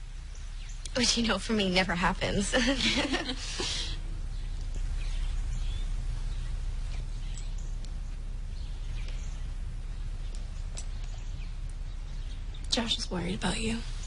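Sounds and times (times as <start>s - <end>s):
low background hum: 0.0s - 14.0s
faint high-pitched chirps: 4.0s - 14.0s.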